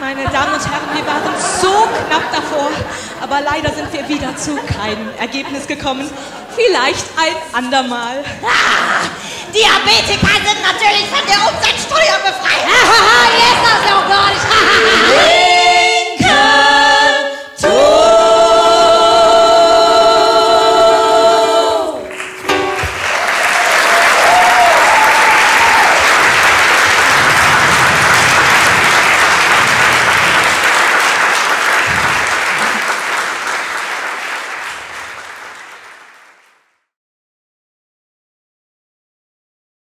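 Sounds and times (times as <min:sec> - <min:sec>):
women singing: 0:12.7 - 0:22.1
audience applauding: 0:22.0 - 0:36.6.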